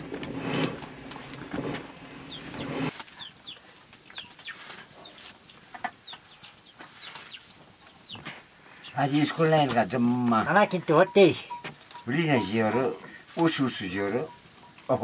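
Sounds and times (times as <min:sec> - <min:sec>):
small bird chirping: 0:02.0 - 0:09.7.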